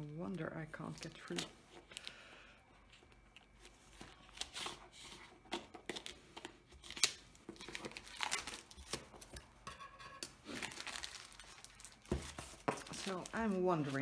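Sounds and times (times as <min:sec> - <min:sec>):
plastic wrapping crinkling: 0:02.9 - 0:09.4, 0:10.4 - 0:14.0.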